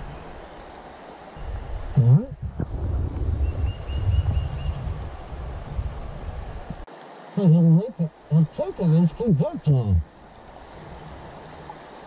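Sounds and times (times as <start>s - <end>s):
rumbling water: 0.0s - 12.0s
wind noise: 1.4s - 6.9s.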